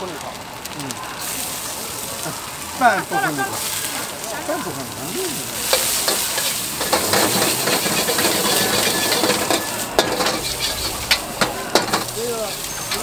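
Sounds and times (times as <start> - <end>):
vegetables sizzling in a wok: 0.0 - 13.0
ladle clanking on wok: 5.6 - 13.0
ladle stirring and scraping: 5.6 - 13.0.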